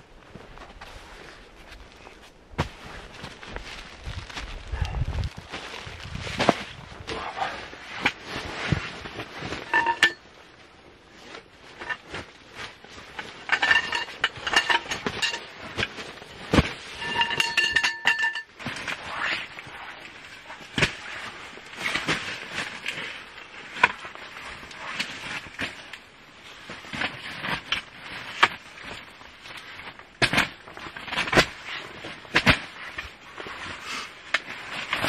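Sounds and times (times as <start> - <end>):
metal tubes clicking and clinking: 9.7 - 10.2, 17.0 - 18.6
ringing tones from metal tubes: 9.7 - 10.2, 17.0 - 18.5.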